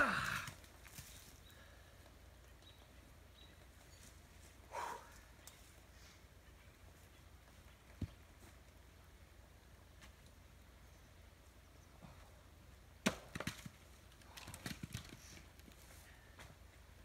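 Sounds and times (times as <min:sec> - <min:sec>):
axe striking wood: 0:13.0 - 0:13.6.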